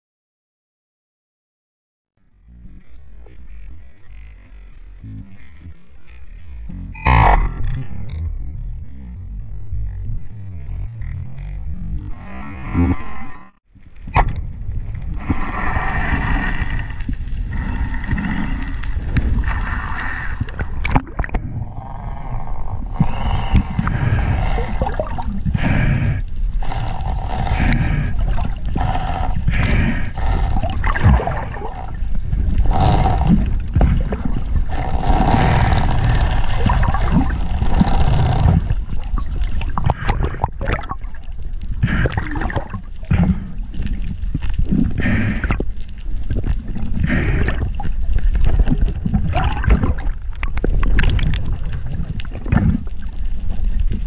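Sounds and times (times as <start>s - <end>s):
strong low rumble: 2.2s - 54.0s
water rushing and gurgling: 26.6s - 54.0s.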